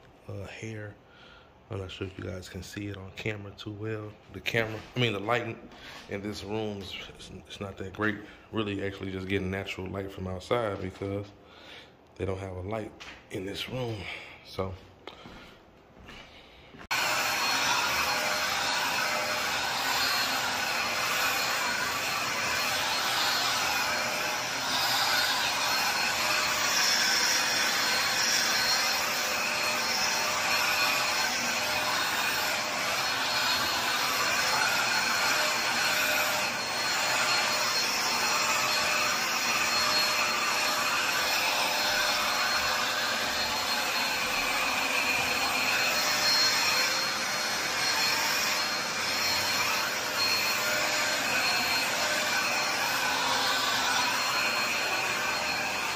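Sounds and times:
handheld vacuum running: 16.8s - 55.9s.

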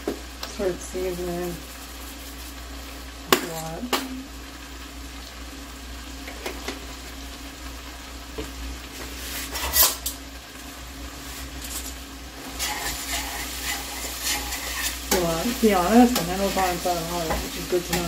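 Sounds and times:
food sizzling in a pot: 0.0s - 18.0s
utensil scraping a pot: 12.5s - 18.0s.

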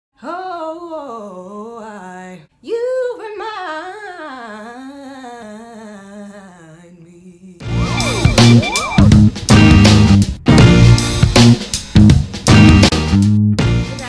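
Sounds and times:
woman singing unaccompanied: 0.2s - 7.8s.

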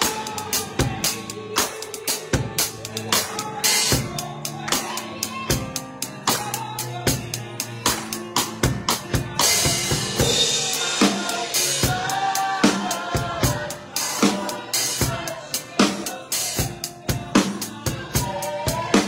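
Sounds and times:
drum kit groove: 0.0s - 19.0s.

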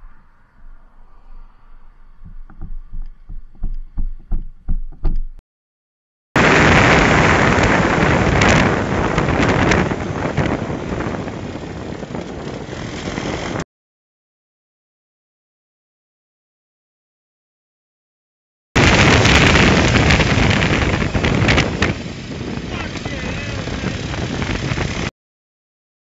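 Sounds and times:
wind rush on microphone: 0.0s - 4.5s, 6.4s - 13.6s, 18.8s - 25.1s
soft knocks: 2.2s - 5.4s.

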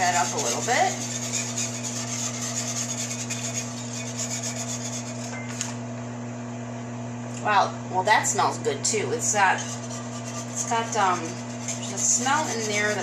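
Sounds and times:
whisk scraping a wok: 0.0s - 5.6s, 9.2s - 13.0s
steady low hum: 0.0s - 13.0s.

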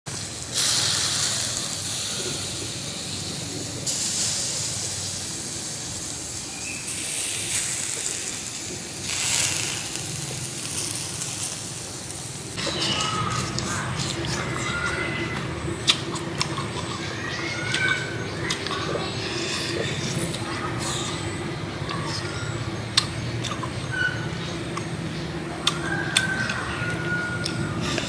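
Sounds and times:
meat sizzling over charcoal: 0.1s - 18.3s.

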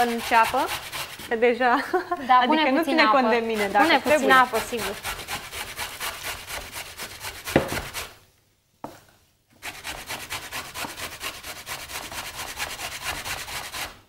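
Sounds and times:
grating on metal box grater: 0.0s - 1.4s, 3.4s - 8.0s.

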